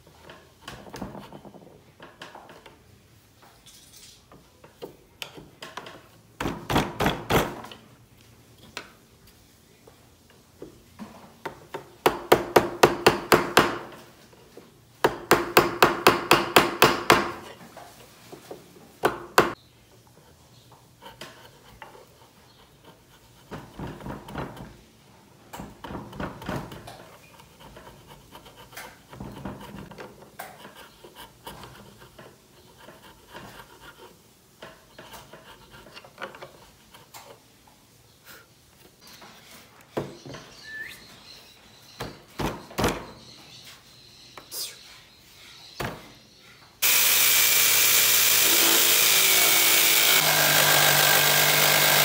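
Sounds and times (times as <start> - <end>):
chisel scraping wood: 27.1 - 37.3, 48.0 - 52.0.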